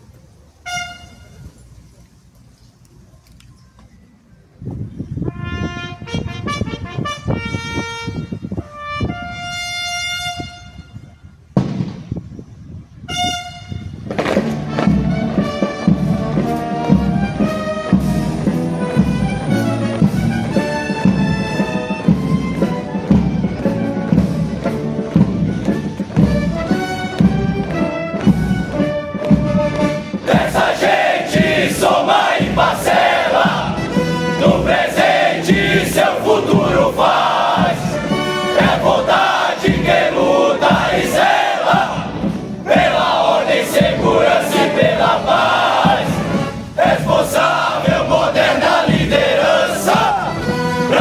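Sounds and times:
military brass band march: 0.6s - 1.6s, 5.2s - 12.1s, 13.0s - 51.0s
bugle call over drums: 25.6s - 51.0s.

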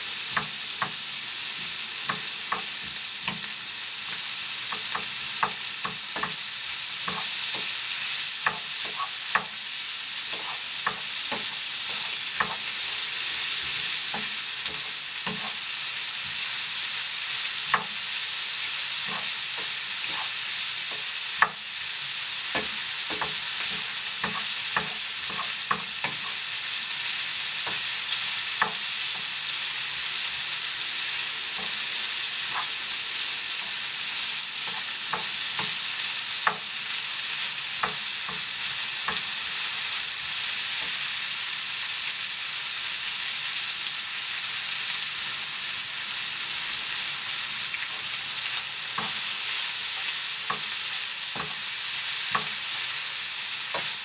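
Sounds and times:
onion and bacon sizzling in pan: 0.0s - 54.0s
wooden spoon scraping a pan: 8.5s - 9.2s, 10.2s - 12.8s, 13.6s - 15.6s, 19.0s - 21.1s, 32.4s - 32.8s, 34.6s - 35.7s.

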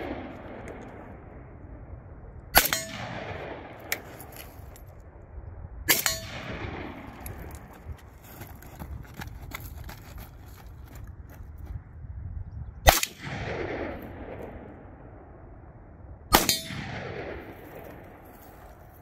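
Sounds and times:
rifle shots with rolling echo: 0.0s - 8.1s, 12.8s - 19.0s
metallic ring of steel target: 2.6s - 4.8s, 5.9s - 6.6s, 16.4s - 17.0s.

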